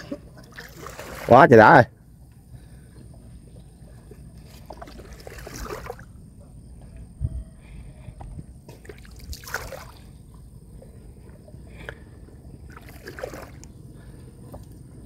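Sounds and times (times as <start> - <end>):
water sloshing: 0.0 - 1.4, 2.7 - 6.3, 8.7 - 14.5
short water splashes: 0.0 - 1.6, 3.8 - 6.2, 8.7 - 10.3, 12.6 - 13.7
low steady rumble: 1.9 - 15.0.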